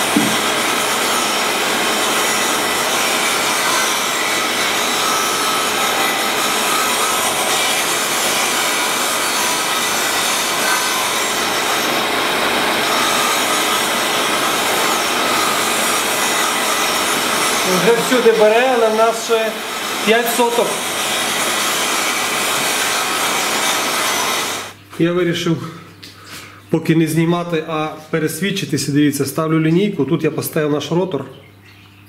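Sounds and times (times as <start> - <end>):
grinding wheel on metal: 0.0 - 24.8.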